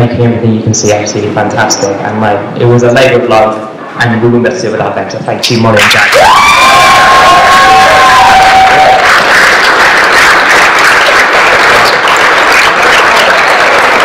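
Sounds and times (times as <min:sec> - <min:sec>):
crowd applauding: 0:05.8 - 0:14.0
crowd calling out: 0:06.1 - 0:09.3.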